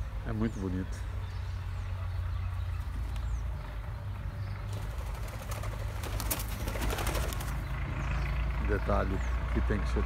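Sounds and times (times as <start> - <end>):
wings flapping rapidly: 4.7 - 7.7.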